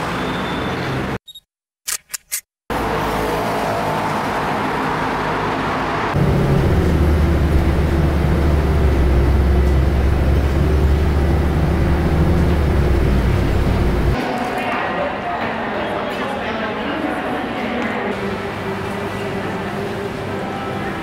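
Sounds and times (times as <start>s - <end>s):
vehicle road noise: 2.7s - 14.3s
deep rumble: 6.2s - 14.2s.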